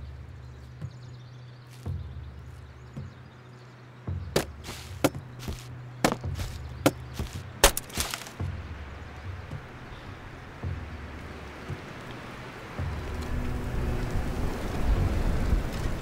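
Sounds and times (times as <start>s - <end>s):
axe splitting firewood: 4.4s - 8.4s
low steady drone: 8.4s - 16.0s.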